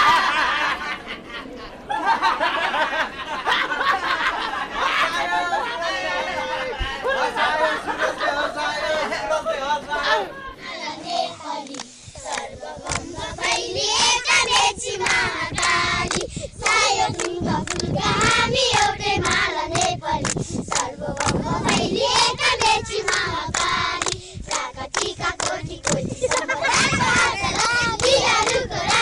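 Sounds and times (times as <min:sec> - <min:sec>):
hand claps: 0:11.6 - 0:13.1, 0:15.0 - 0:18.0, 0:18.7 - 0:21.9, 0:22.6 - 0:29.0.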